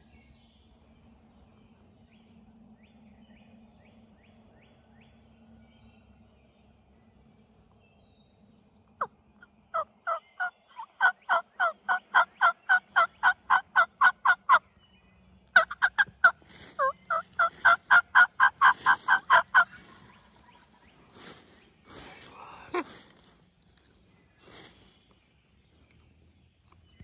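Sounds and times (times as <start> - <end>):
turkey yelping: 9.8 - 14.6, 15.6 - 20.1.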